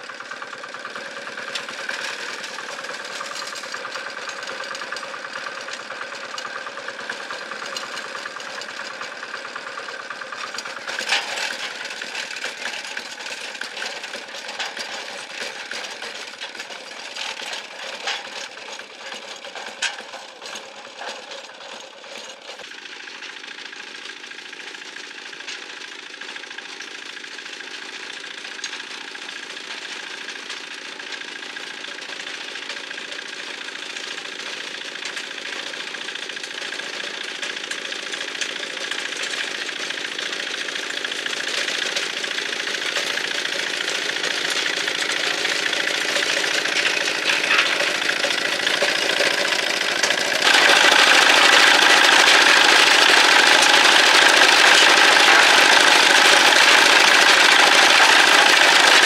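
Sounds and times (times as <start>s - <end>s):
engine knocks: 0.0s - 22.6s, 36.0s - 59.0s
diesel engine chugging: 0.0s - 59.0s.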